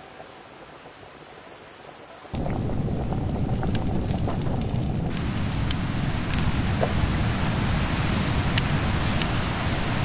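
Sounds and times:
wood fire crackling and popping: 2.3 - 7.2, 7.8 - 9.4.

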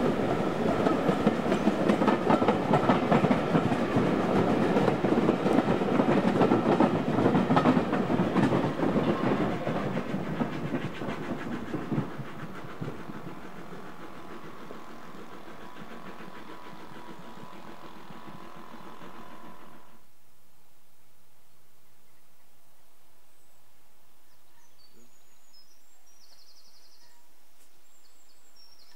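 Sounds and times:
train wheels clattering on rail joints: 0.0 - 20.0.

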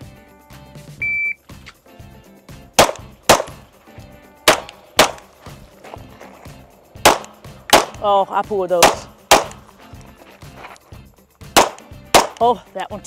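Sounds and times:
background music with beat: 0.0 - 13.0
shot timer beep: 1.0 - 1.4
pistol shots: 2.8 - 3.7, 4.5 - 5.3, 7.0 - 8.1, 8.8 - 9.6, 11.5 - 12.4.

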